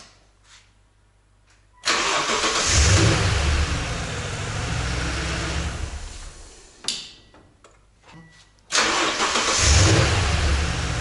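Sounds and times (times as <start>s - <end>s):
truck engine starting and running: 1.8s - 6.8s, 8.7s - 11.0s.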